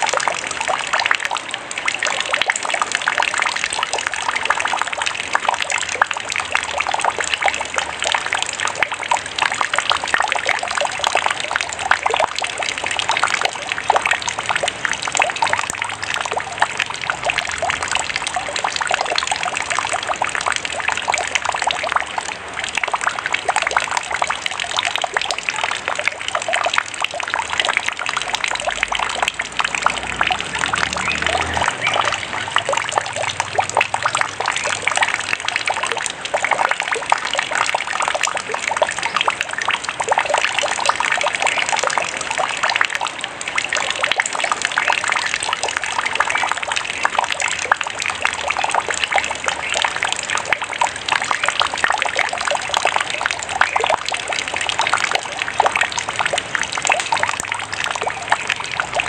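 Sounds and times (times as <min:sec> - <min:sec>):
water running over rocks: 0:00.0 - 0:59.0.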